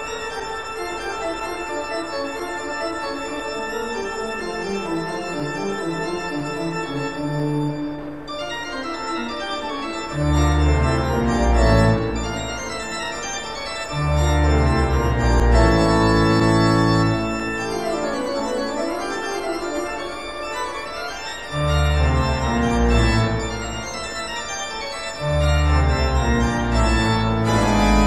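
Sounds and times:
organ chords: 0.0 - 28.0
deep organ bass notes: 13.9 - 17.4, 21.7 - 24.2, 25.3 - 28.0.

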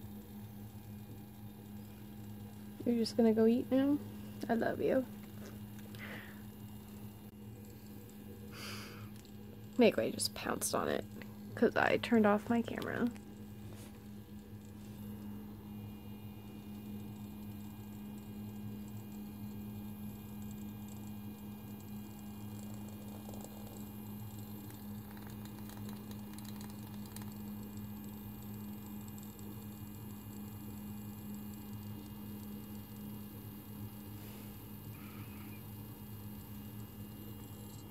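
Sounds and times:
low electrical hum: 0.0 - 37.9
faint high whine: 34.1 - 37.9.

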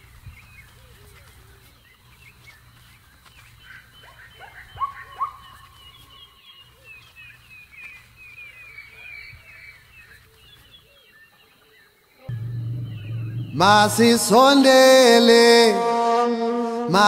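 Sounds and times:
birds chirping and calling: 0.0 - 15.0
low steady hum: 12.3 - 14.6.

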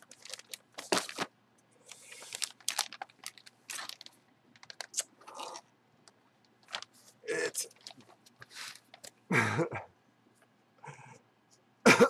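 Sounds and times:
plastic bag crinkling: 0.0 - 1.3, 1.9 - 5.6, 6.5 - 9.1.

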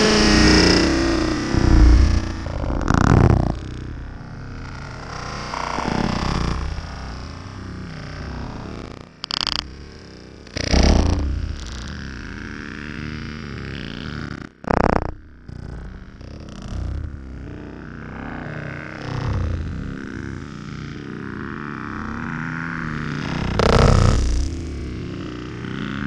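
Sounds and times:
loud knocks: 1.5 - 3.7.

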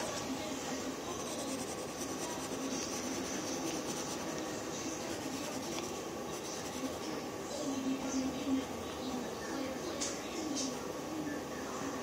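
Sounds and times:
pencil scratching on paper: 1.1 - 7.1.

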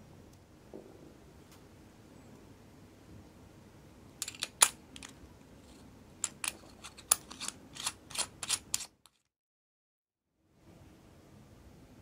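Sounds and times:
light metal scrapes: 5.0 - 9.2
sharp metal clicks: 6.2 - 9.2.

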